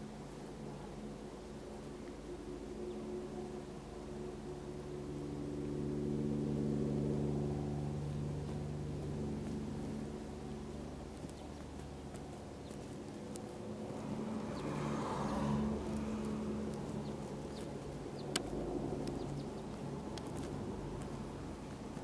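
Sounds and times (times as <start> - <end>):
distant helicopter drone: 0.0 - 22.0.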